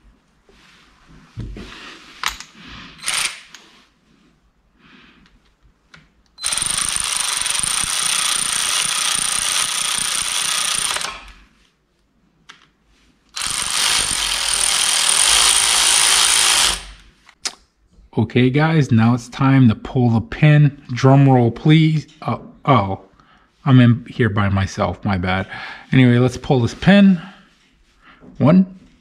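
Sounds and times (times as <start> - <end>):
power ratchet whining: 3.0 - 3.6, 6.4 - 11.4, 13.4 - 17.0.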